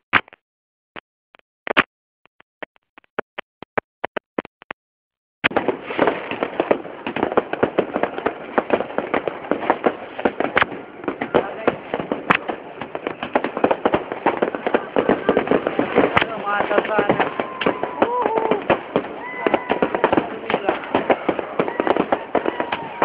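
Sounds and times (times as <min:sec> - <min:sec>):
fireworks bangs and crackle: 0:05.4 - 0:23.0.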